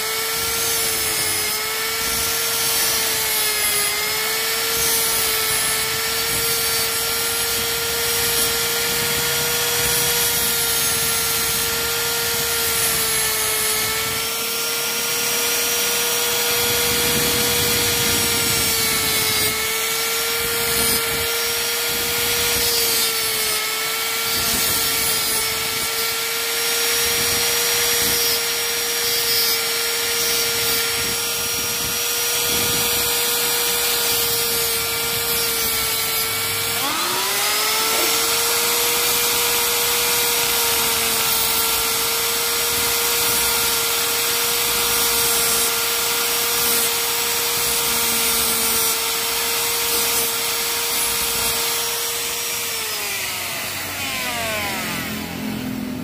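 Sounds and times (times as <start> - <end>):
abrasive rasping on steel: 0.0 - 55.6
rotary tool cut-off disc whining: 0.0 - 56.0.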